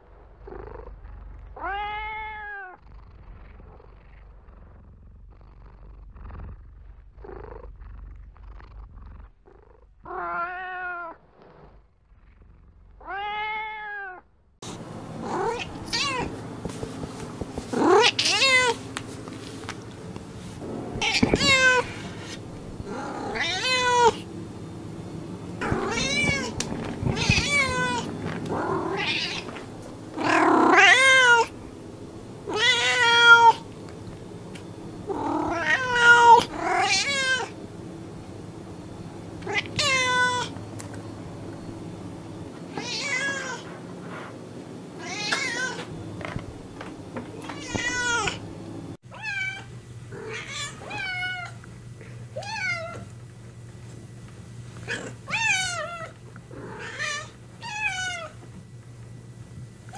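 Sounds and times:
cats meowing: 1.6s - 2.8s, 13.0s - 14.2s, 15.2s - 16.4s, 17.7s - 18.8s, 21.0s - 24.2s, 25.6s - 31.5s, 32.5s - 33.7s, 35.0s - 37.6s, 39.4s - 40.6s, 42.6s - 43.7s, 45.0s - 45.9s, 47.4s - 48.4s, 49.1s - 51.6s, 54.8s - 58.5s.

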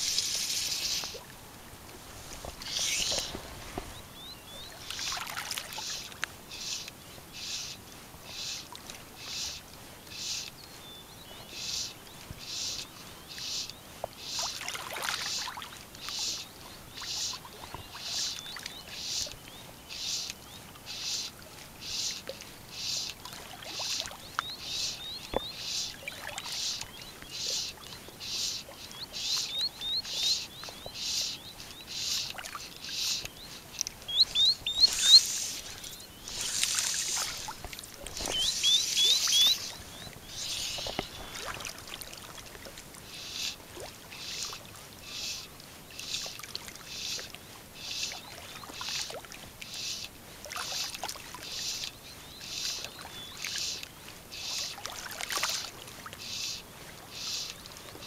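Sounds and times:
high bird chirps: 2.6s - 3.4s, 34.1s - 37.4s, 38.2s - 41.4s
insect buzzing in pulses: 34.8s - 37.5s.

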